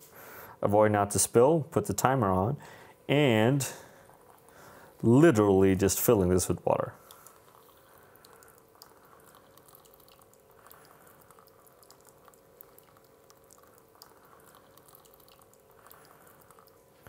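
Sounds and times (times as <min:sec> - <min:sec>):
water trickling from kettle: 0:03.8 - 0:17.0
small splashing ticks: 0:07.0 - 0:16.8.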